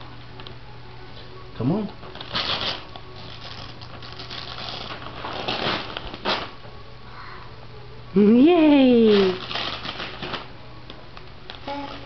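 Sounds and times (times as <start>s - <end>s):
wrapping paper crinkling: 2.0s - 6.6s, 9.1s - 10.5s.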